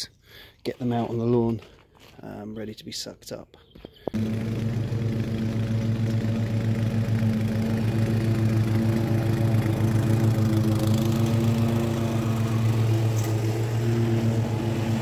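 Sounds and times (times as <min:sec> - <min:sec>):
lawn mower cutting grass: 0:04.2 - 0:15.0.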